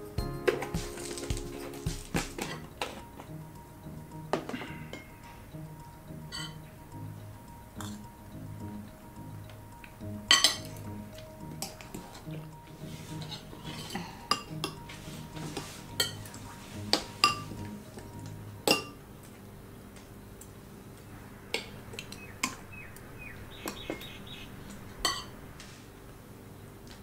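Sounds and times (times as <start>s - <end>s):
cutlery clinking on plates: 0.5s - 3.3s, 6.3s - 6.6s, 10.3s - 10.8s, 13.2s - 18.1s, 18.7s - 19.0s, 25.0s - 25.3s.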